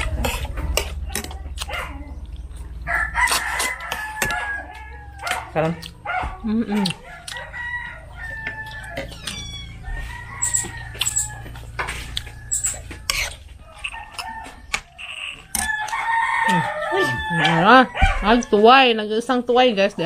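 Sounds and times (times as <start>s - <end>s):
rooster crowing: 2.9s - 5.4s, 6.9s - 18.9s.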